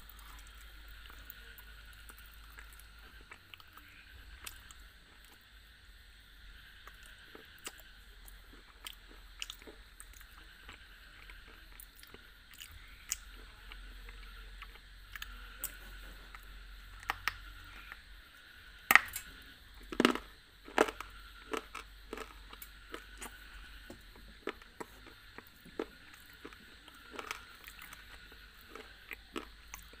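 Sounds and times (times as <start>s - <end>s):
biting and crunching chalk: 18.9s - 30.0s.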